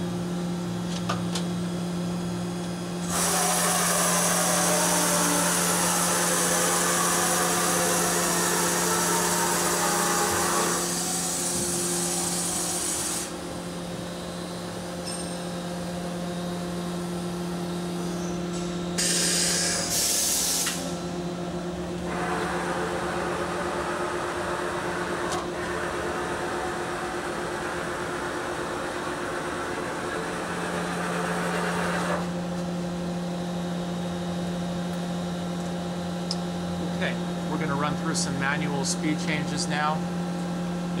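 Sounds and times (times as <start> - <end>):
machine hum: 0.0 - 41.0
rushing machine noise: 3.0 - 14.5.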